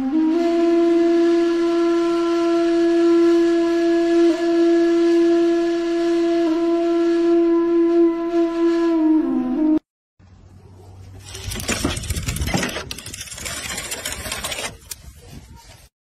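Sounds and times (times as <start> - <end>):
wind instrument long note: 0.0 - 9.8.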